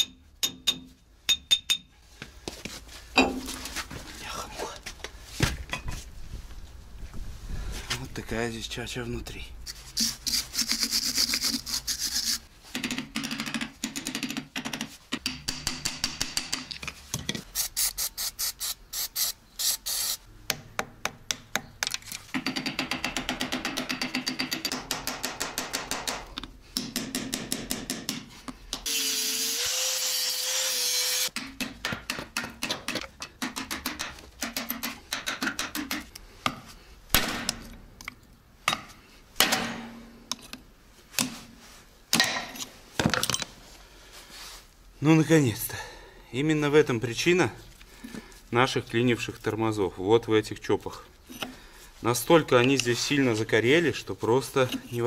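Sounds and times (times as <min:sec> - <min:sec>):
rapid clicking and scraping tools: 0:10.0 - 0:16.8.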